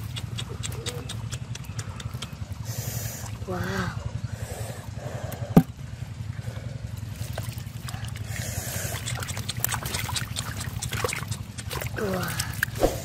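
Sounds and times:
steady low hum: 0:00.0 - 0:13.0
hands splashing in muddy water: 0:07.1 - 0:13.0.

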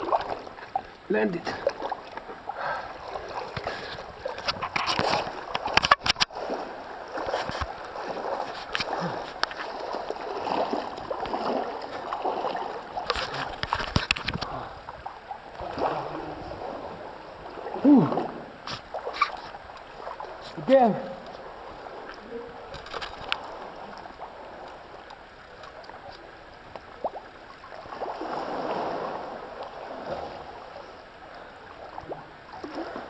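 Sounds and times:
water splashing from wading: 0:00.0 - 0:33.0
person exclaiming: 0:17.8 - 0:18.1.

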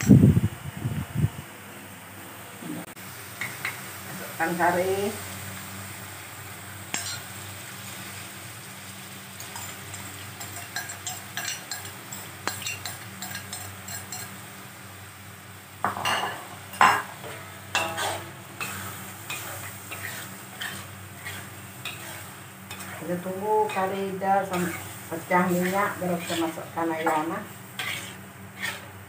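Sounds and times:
paste sizzling in oil: 0:02.9 - 0:29.0
metal spatula scraping a wok: 0:06.9 - 0:08.0, 0:09.4 - 0:14.4, 0:16.1 - 0:29.0.

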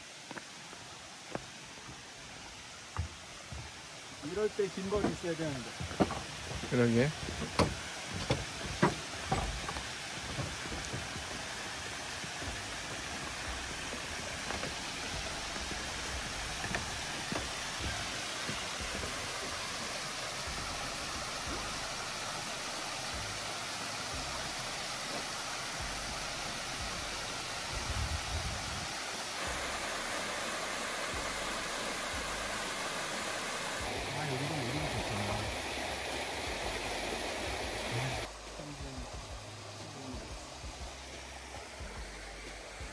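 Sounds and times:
stream rushing over rocks: 0:00.0 - 0:42.9
footsteps on wooden stairs: 0:00.2 - 0:04.2, 0:05.0 - 0:19.5.

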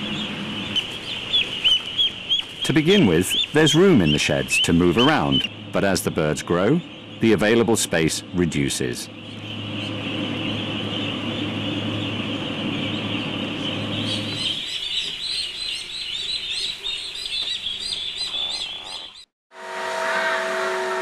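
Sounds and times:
low hum: 0:00.0 - 0:14.6
machine hum: 0:00.0 - 0:17.2
ducklings peeping: 0:00.0 - 0:19.3.

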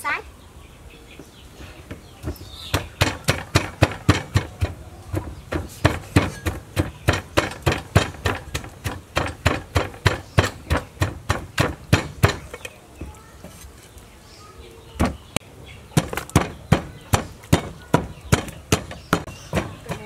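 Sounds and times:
wooden pestle pounding in mortar: 0:01.9 - 0:12.6, 0:16.0 - 0:20.0.

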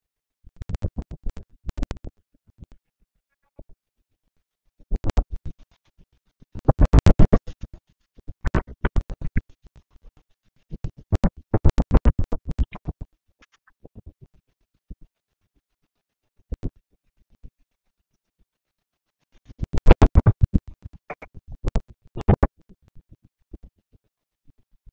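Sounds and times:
stuttering wind and rain bursts: 0:19.5 - 0:22.5.

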